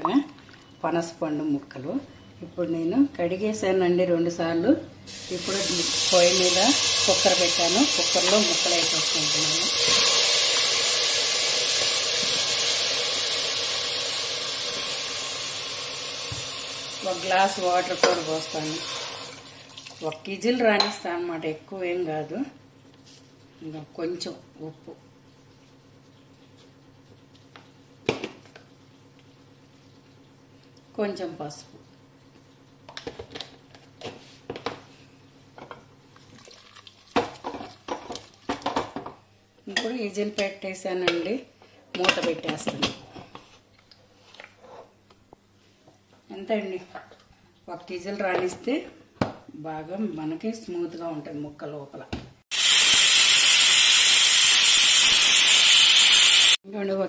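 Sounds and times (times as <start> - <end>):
sizzling hiss in pressure cooker: 5.1 - 19.5, 52.5 - 56.6.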